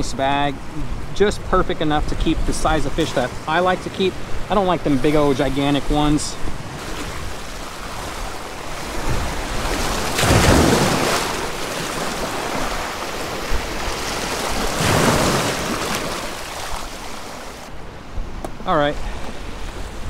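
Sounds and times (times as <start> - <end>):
surf splashing between boulders: 4.7 - 17.7.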